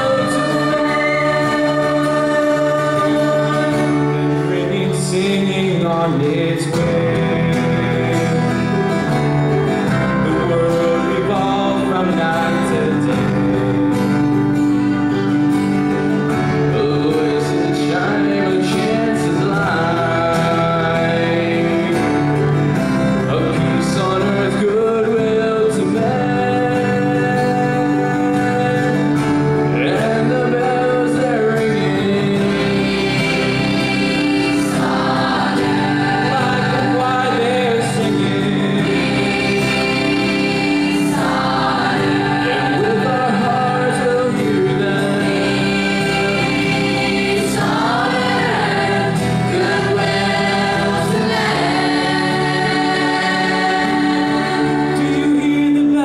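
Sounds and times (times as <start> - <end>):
young men singing: 0.0 - 9.6, 10.2 - 14.2, 16.7 - 22.4, 23.3 - 56.0
electric bass: 0.0 - 56.0
keyboard: 0.0 - 56.0
strummed acoustic guitar: 0.0 - 56.0.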